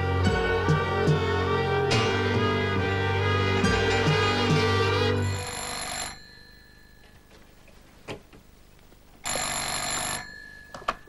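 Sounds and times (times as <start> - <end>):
telephone bell ringing: 5.2 - 7.5, 9.2 - 11.0.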